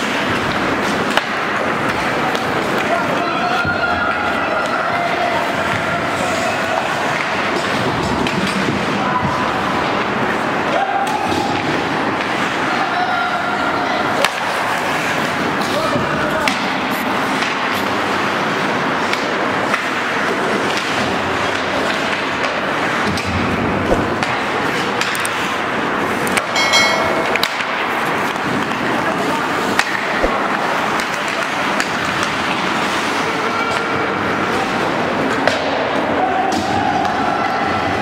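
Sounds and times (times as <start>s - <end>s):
hockey sticks and puck knocking: 0.0s - 3.9s, 14.2s - 33.1s, 35.2s - 37.2s
skates scraping on ice: 14.1s - 26.4s.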